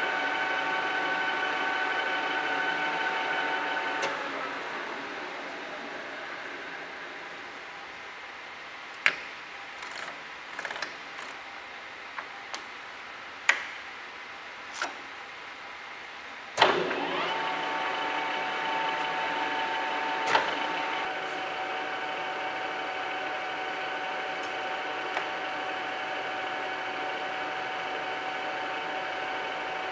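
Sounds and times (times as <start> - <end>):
lathe running with whine: 0.0 - 7.5, 16.6 - 29.9.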